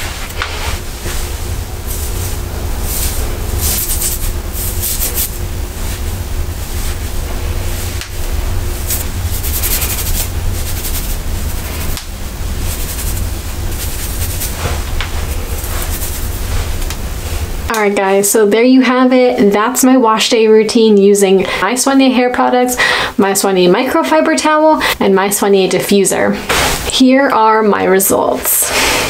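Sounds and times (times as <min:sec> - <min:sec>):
low rumble: 0:00.0 - 0:17.7
hands rustling curly hair: 0:00.0 - 0:17.8
steady rushing noise: 0:00.0 - 0:18.4
faint hum: 0:00.0 - 0:29.0.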